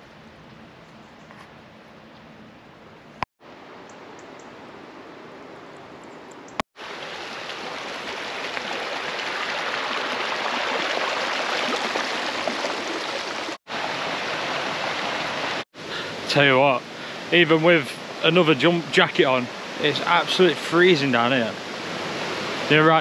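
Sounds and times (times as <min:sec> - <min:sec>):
stream rushing over rocks: 0:06.8 - 0:23.0.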